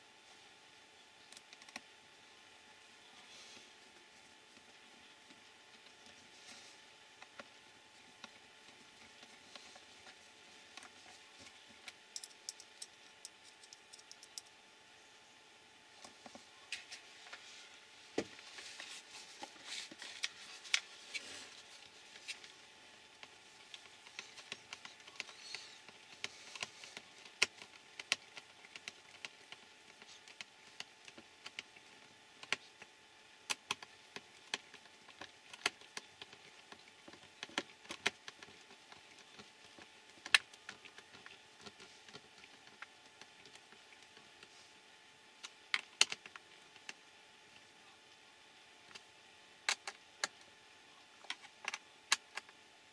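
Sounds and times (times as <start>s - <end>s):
small clicks and taps on plastic: 33.5s - 44.5s.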